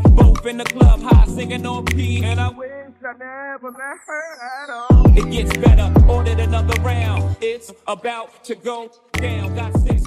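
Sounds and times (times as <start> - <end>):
rapping over hip hop beat: 0.0 - 10.0
heavy bass glides: 4.9 - 7.4.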